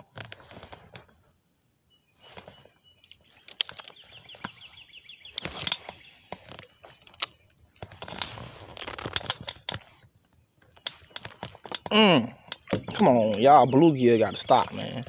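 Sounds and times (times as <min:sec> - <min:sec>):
rustling: 0:00.0 - 0:01.4, 0:05.3 - 0:11.9.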